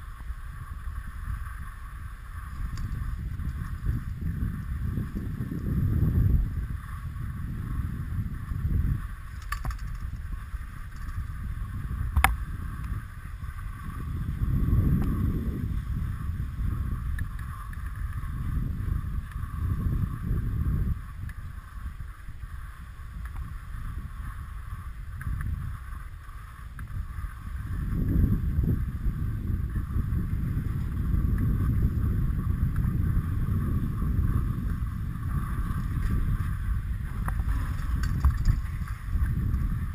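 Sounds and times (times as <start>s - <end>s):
skis sliding over snow: 0.0s - 39.9s
wind buffeting microphone: 0.0s - 39.9s.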